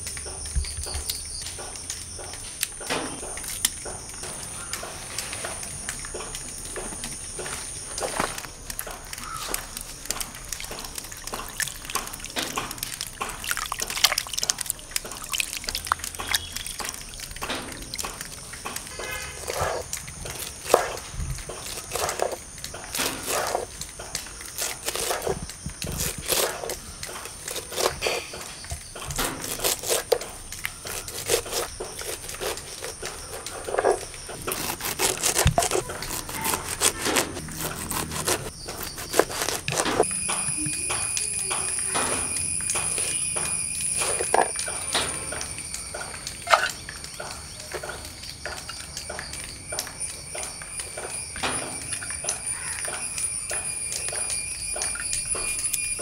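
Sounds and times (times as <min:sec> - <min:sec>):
hands splashing in water: 0:04.1 - 0:40.0
knife chopping on wooden board: 0:24.5 - 0:41.0.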